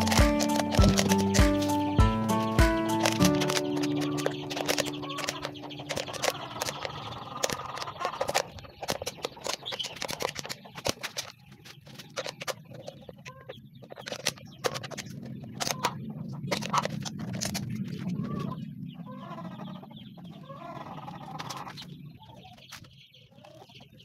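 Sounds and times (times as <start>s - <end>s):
plastic bottle crackling: 0.0s - 12.9s
scissors cutting plastic: 0.0s - 13.0s, 14.0s - 18.2s.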